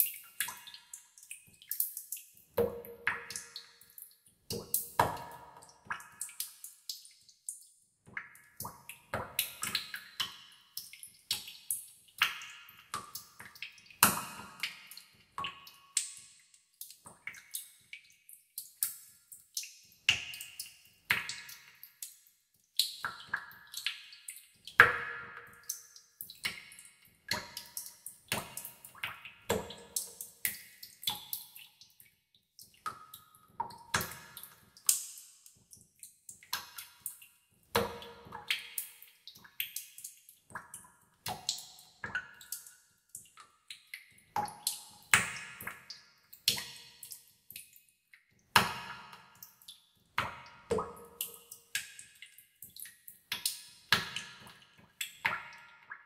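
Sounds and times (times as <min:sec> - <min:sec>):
water drops plinking into water: 0:00.0 - 0:11.6, 0:22.8 - 0:32.0, 0:32.6 - 0:56.0.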